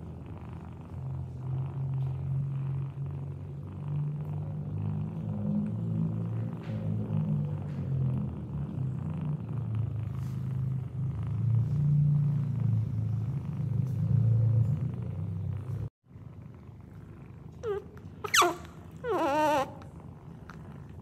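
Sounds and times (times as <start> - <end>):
cat purring: 0.0 - 21.0
young animal squeaks: 17.6 - 19.8.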